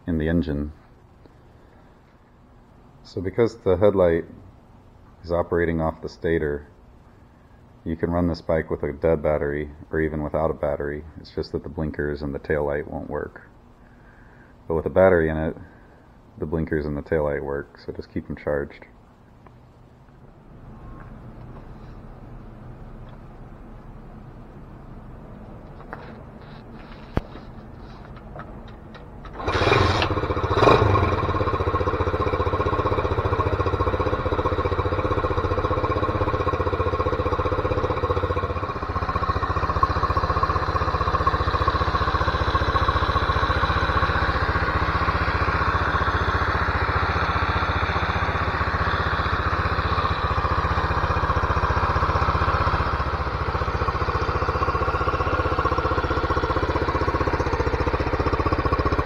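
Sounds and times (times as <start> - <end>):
motorcycle engine starting and idling: 25.1 - 59.0.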